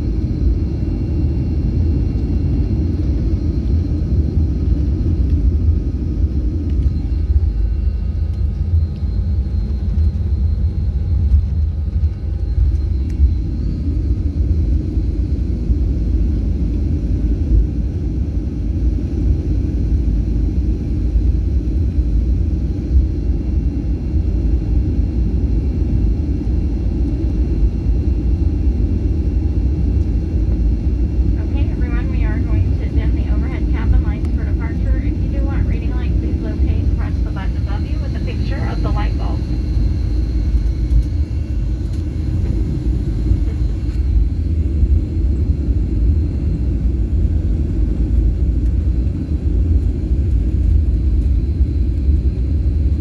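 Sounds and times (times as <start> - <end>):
faint high whine: 0.0 - 17.9, 25.8 - 49.5
jet engines low rumble: 0.0 - 53.0.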